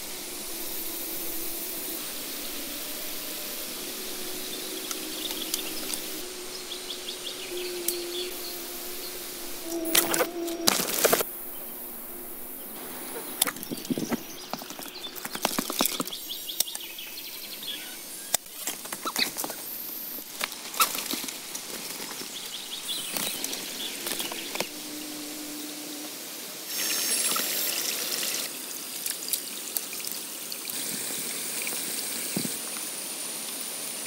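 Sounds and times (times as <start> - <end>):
birds chirping: 0.0 - 26.0.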